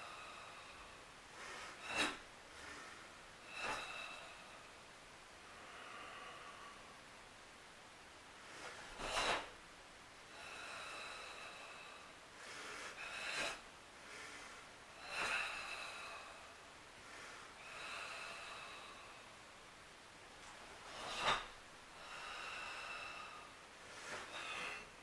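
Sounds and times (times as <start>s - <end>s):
short sharp breaths: 0.0s - 4.8s, 8.4s - 9.6s, 10.4s - 19.5s, 20.8s - 25.0s
long hissing breaths: 0.0s - 7.1s, 10.3s - 19.6s, 20.4s - 25.0s.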